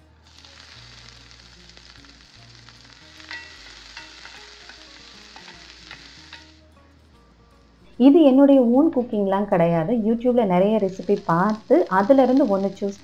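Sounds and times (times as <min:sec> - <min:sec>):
vegetables sizzling in hot oil: 0:00.0 - 0:06.6, 0:10.6 - 0:13.0.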